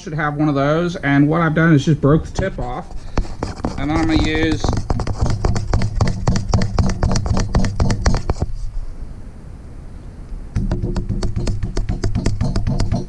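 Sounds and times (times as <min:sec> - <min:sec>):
rubber mallet tapping: 0:03.1 - 0:08.5, 0:10.6 - 0:13.0.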